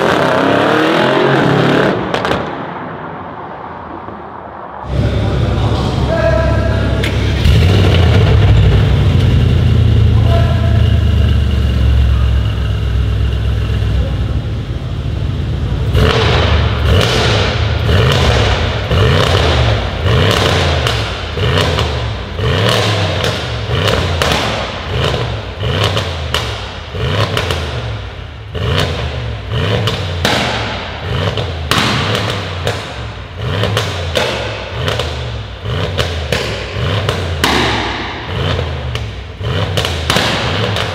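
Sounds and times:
car engine revving: 0:00.0 - 0:03.0, 0:04.8 - 0:40.9
exhaust pops and bangs: 0:01.9 - 0:02.8, 0:15.8 - 0:40.9.

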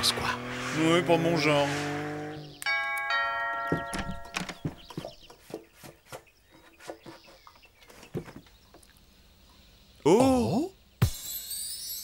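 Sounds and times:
footsteps on wooden floor: 0:03.6 - 0:08.5.

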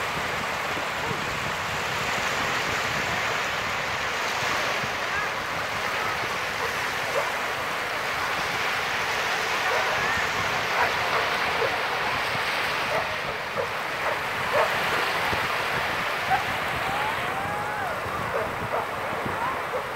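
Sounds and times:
waves washing up a shore: 0:00.0 - 0:19.9.

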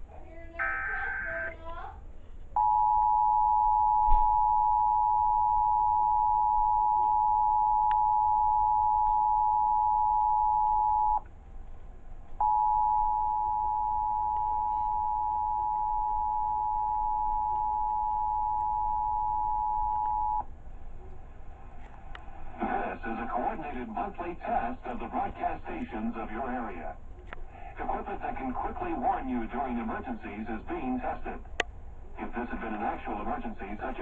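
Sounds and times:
two-tone alert alarm: 0:00.6 - 0:01.5.

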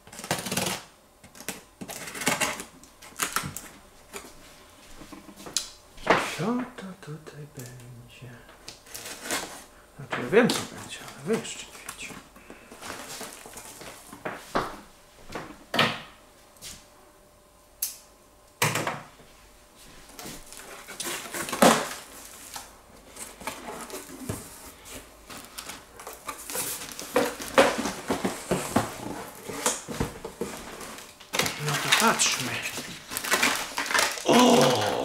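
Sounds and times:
cardboard rustling and crinkling: 0:08.8 - 0:14.6, 0:20.0 - 0:34.3
bubble wrap being handled: 0:20.2 - 0:35.0.

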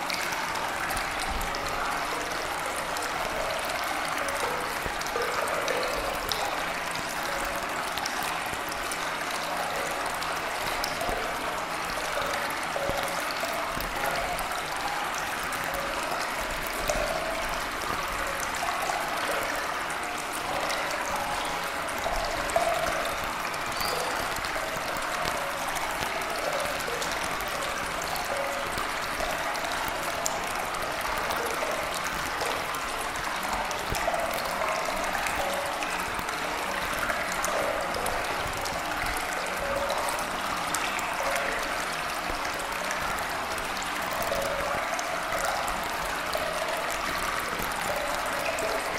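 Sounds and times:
running water: 0:00.0 - 0:48.9.

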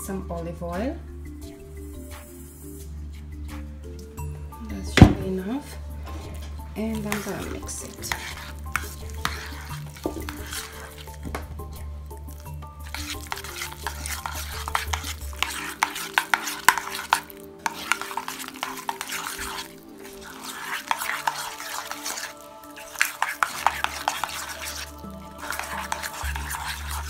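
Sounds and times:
metal utensil scraping steel bowl: 0:05.0 - 0:27.0.

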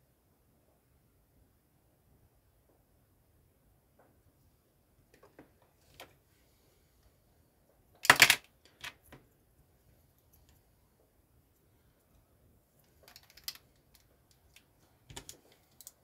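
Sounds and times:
plastic bricks clattering: 0:08.0 - 0:09.0
plastic bricks clicking: 0:08.0 - 0:09.0, 0:12.9 - 0:16.0.

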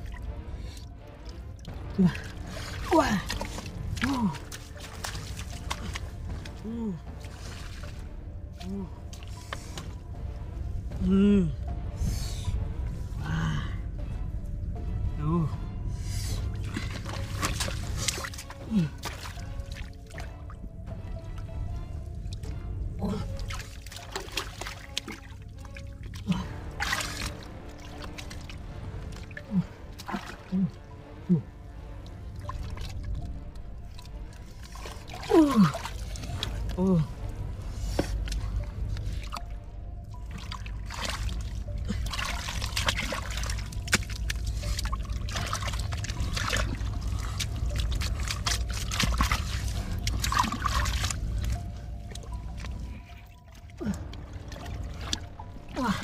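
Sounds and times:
small splashes: 0:00.0 - 0:10.0, 0:16.4 - 0:30.8, 0:31.8 - 0:56.0
background music: 0:00.0 - 0:56.0
muddy water sloshing and trickling: 0:00.0 - 0:56.0
hands splashing in water: 0:02.1 - 0:08.1, 0:23.4 - 0:28.5, 0:40.3 - 0:52.9
water trickling: 0:31.7 - 0:56.0.

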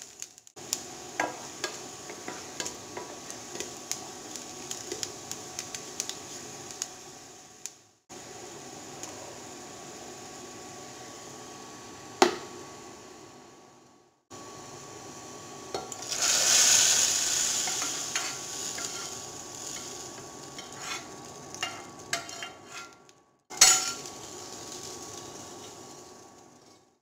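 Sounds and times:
hot oil sizzling: 0:00.0 - 0:13.3, 0:14.3 - 0:27.0
spoon clinking and scraping pan: 0:17.6 - 0:19.2, 0:19.8 - 0:24.1.

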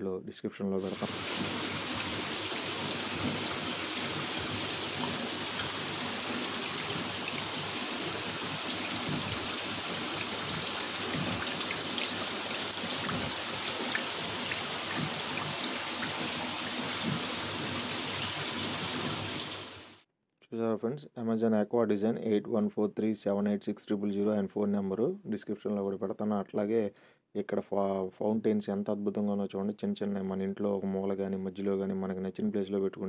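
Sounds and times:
fountain water falling: 0:00.8 - 0:20.0.

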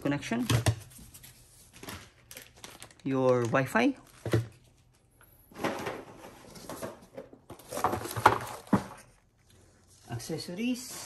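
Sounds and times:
plastic bags crinkling: 0:01.5 - 0:04.8, 0:06.5 - 0:10.2.

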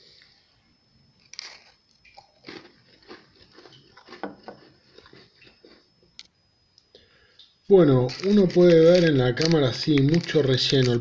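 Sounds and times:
person chewing crunchy cookie: 0:01.2 - 0:05.9, 0:08.0 - 0:11.0.

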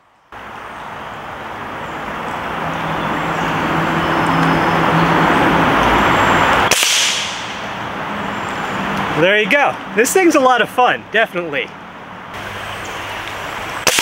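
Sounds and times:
steady rushing noise: 0:00.4 - 0:11.6
air rifle firing crack: 0:06.7 - 0:07.7.

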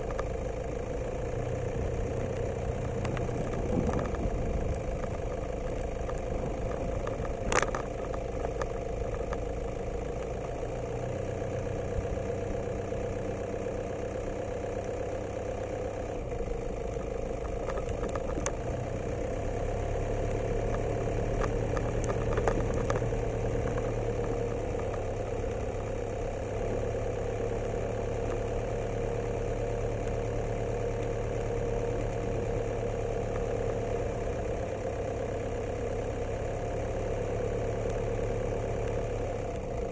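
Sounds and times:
vehicle engine running at low revs: 0:00.0 - 0:39.9
faint clicks: 0:02.0 - 0:10.6, 0:16.8 - 0:18.6, 0:20.2 - 0:25.2, 0:37.8 - 0:38.1.

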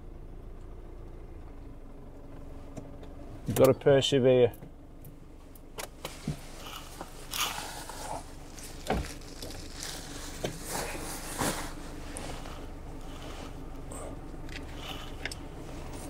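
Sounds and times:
beanbag crunching and rustling: 0:06.4 - 0:13.7.

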